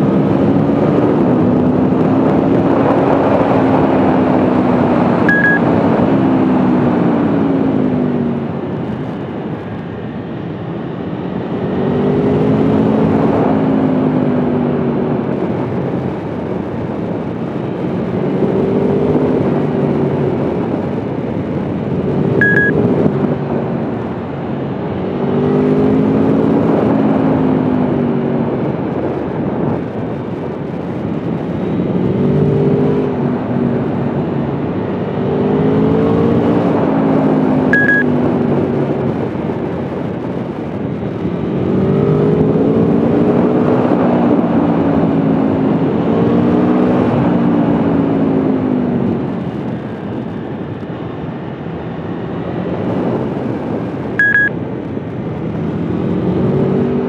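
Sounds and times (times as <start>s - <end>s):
wind rush on microphone: 0.0s - 57.0s
motorcycle engine revving: 30.1s - 50.8s.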